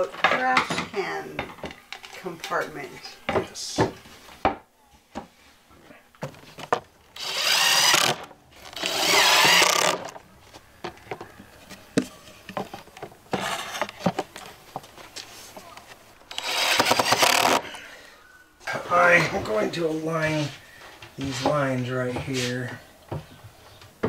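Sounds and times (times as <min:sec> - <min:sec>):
wood being handled: 0:00.0 - 0:17.8
cordless drill into wood: 0:07.2 - 0:10.2, 0:16.3 - 0:17.7.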